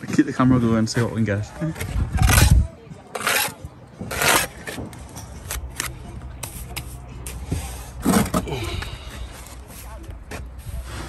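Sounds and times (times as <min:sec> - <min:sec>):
trowel scraping wet mortar: 0:02.2 - 0:04.8.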